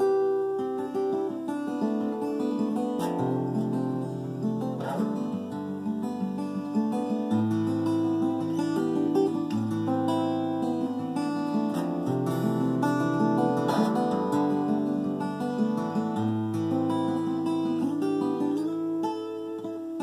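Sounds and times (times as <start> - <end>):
fingerpicked acoustic guitar: 0.0 - 20.0.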